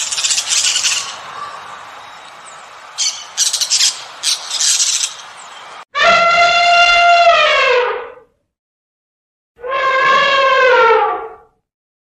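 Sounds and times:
parrot squawking: 0.0 - 2.3, 3.0 - 5.3.

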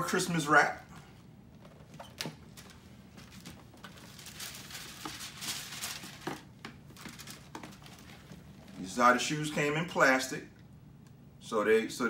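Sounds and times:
paper and plastic rustling: 1.7 - 8.8.

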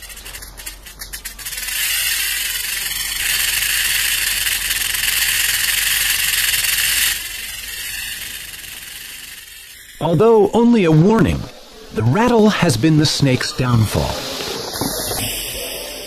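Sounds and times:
rattlesnake tail rattle buzzing: 0.0 - 10.5.

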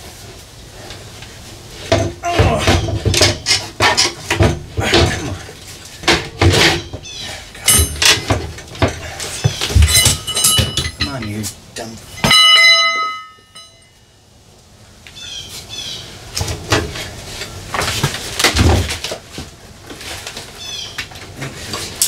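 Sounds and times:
tools and cables handled on metal floor: 0.1 - 11.6, 12.2 - 13.9, 16.3 - 22.0
metallic clang ringing: 7.6 - 8.3, 9.8 - 11.5, 12.1 - 14.0
bird chirping: 15.2 - 16.1.

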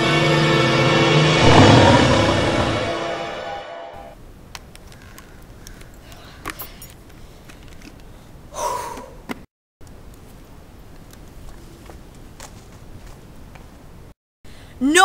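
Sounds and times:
scary background music: 0.0 - 4.1
boy gasping: 8.5 - 9.2.

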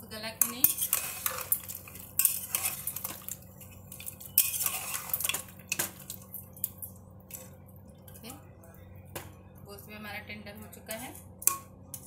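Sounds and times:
metal ladle scraping a pot: 0.4 - 6.2.

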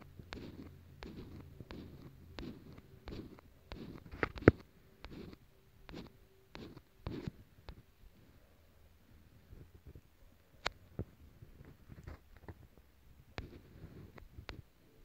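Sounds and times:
finger tapping phone touchscreen: 0.0 - 7.8.

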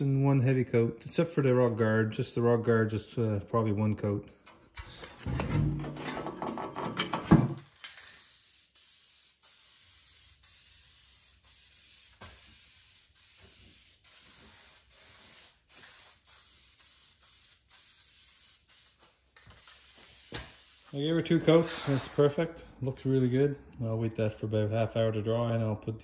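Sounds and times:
spray paint can hissing: 7.7 - 21.2.

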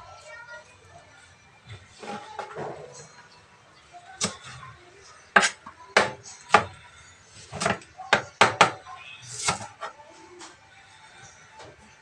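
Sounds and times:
knife chopping on cutting board: 5.4 - 6.7, 7.5 - 8.8.

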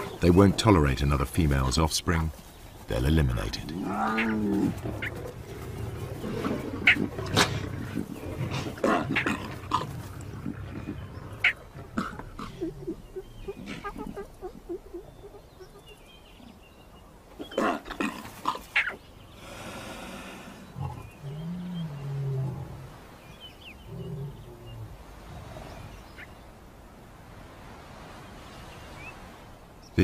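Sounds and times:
lions growling and snarling: 3.7 - 14.0, 19.7 - 23.0.

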